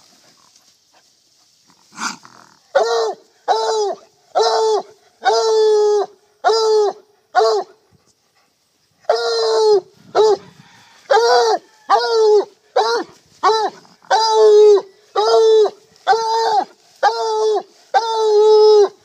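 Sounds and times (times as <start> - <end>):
dog barking: 7.4 - 7.8, 12.8 - 14.2.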